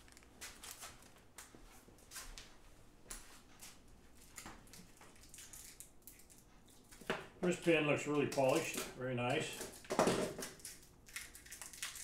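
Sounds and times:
plastic bag rustling: 0:00.0 - 0:01.2.

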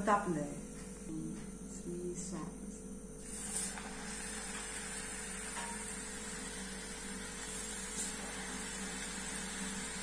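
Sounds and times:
food sizzling in hot oil: 0:03.2 - 0:10.0.

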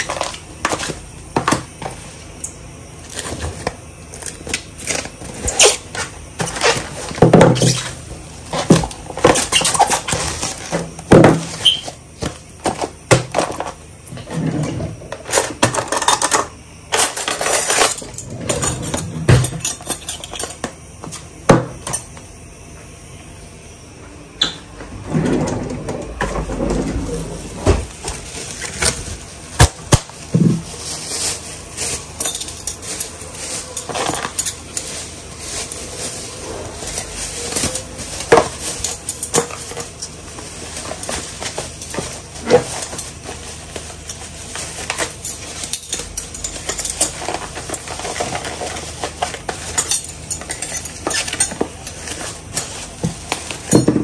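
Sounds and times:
plastic bag rustling: 0:00.0 - 0:13.9, 0:25.1 - 0:54.0.

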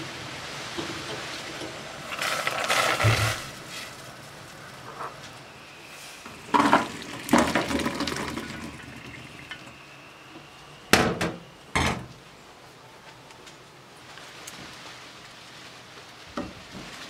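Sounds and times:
water pouring: 0:00.7 - 0:04.3, 0:06.1 - 0:09.9.

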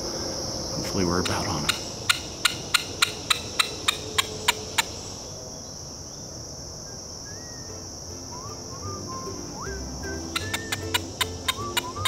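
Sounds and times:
insects droning: 0:00.0 - 0:12.0
squirrel call barks: 0:01.2 - 0:05.2, 0:10.1 - 0:12.0.

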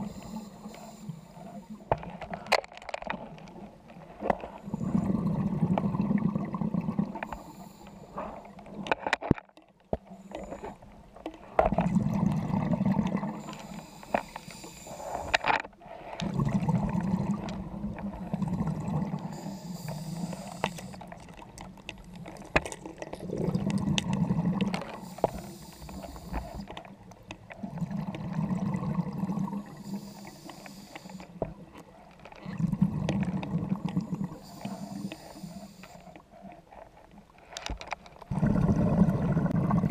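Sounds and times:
regulator hiss: 0:00.0 - 0:01.8, 0:13.4 - 0:15.3, 0:19.2 - 0:21.0, 0:24.9 - 0:26.7, 0:29.6 - 0:31.4, 0:34.2 - 0:36.0
underwater exhaled air bubbling: 0:03.6 - 0:08.9, 0:09.9 - 0:36.6, 0:38.2 - 0:39.9.

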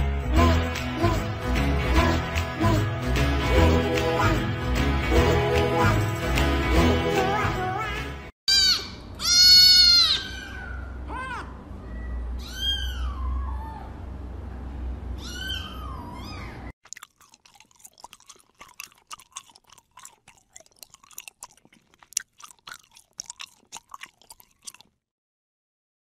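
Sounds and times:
kitten sucking at bottle: 0:16.8 - 0:25.0.

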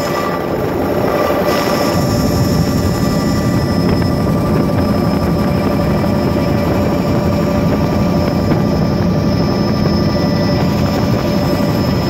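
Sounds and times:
helicopter rotor rumble: 0:00.0 - 0:12.0
turbine whine: 0:00.0 - 0:12.0.

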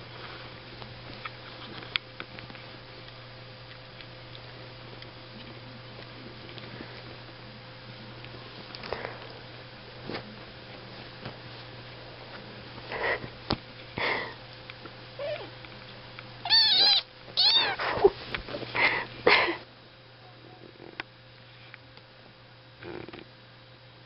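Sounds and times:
kittens mewing: 0:15.2 - 0:15.6, 0:16.4 - 0:18.1.

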